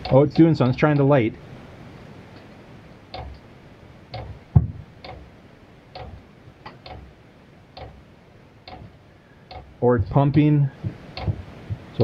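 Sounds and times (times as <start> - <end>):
fuel pump ticking: 5.0 - 5.3, 5.9 - 8.0, 8.6 - 11.9.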